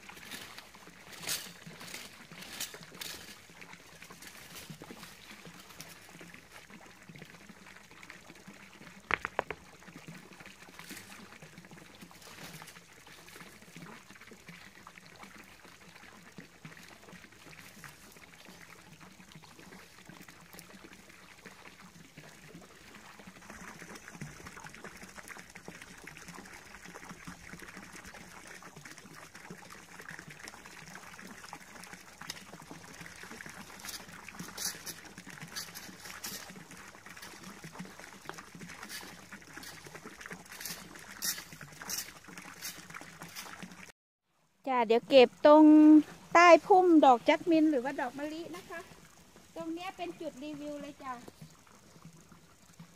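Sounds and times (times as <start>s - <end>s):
fountain splashing into water: 0.0s - 43.9s, 44.8s - 52.9s
sharp knocks: 9.1s - 9.6s.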